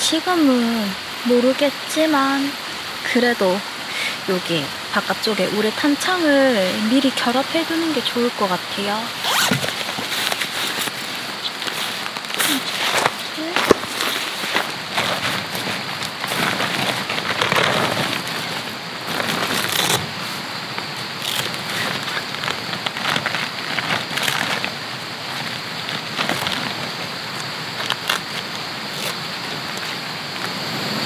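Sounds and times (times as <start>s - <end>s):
flowing water: 0.0s - 31.0s
plastic window panel crinkling: 7.2s - 30.5s.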